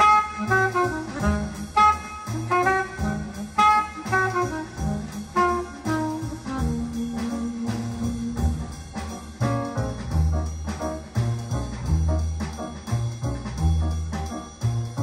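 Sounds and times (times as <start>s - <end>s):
jazz horn melody: 0.0s - 15.0s
pulsing bass line: 4.6s - 15.0s.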